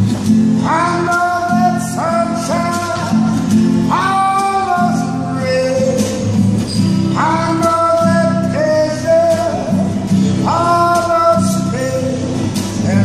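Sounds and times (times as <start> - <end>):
guitar strumming: 0.0 - 13.0
man singing long held notes: 0.6 - 6.4, 7.2 - 13.0.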